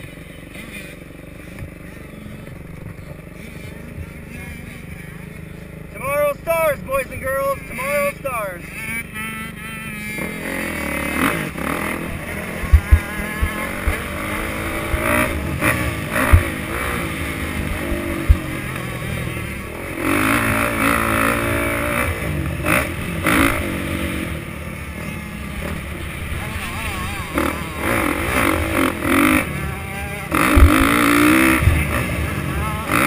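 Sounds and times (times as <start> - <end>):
dirt bike engine revving: 0.0 - 33.0
sharp low thumps: 12.1 - 19.7, 30.3 - 32.0.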